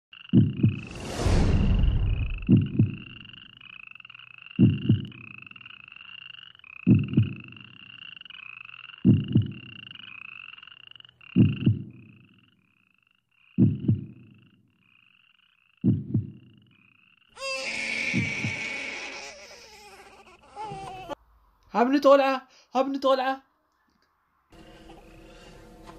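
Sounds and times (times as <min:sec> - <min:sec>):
frogs croaking: 0:00.1 - 0:00.9, 0:01.9 - 0:21.2
deep double thud: 0:00.4 - 0:03.2
loud cry: 0:17.4 - 0:19.6.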